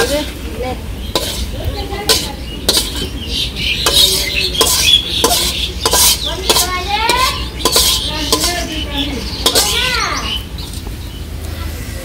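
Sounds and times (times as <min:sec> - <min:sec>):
metal spoon scraping a wok: 0:01.0 - 0:03.1, 0:03.8 - 0:08.8, 0:09.4 - 0:09.9.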